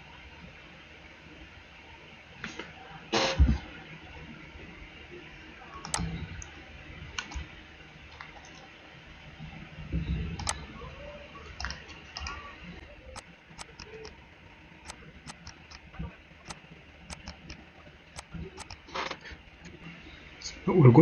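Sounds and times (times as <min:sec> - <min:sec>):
computer mouse clicks: 0:05.8 - 0:06.1, 0:10.4 - 0:10.6, 0:13.2 - 0:14.2, 0:14.9 - 0:15.8, 0:16.4 - 0:17.6, 0:18.2 - 0:18.8.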